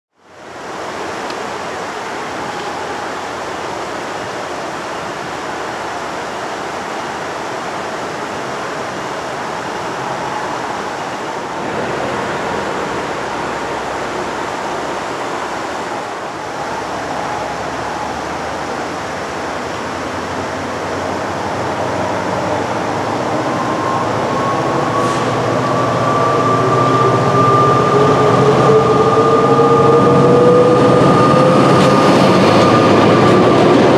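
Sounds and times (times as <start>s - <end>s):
diesel train approaching: 0.2s - 33.9s
whining tones rising in pitch: 8.7s - 33.9s.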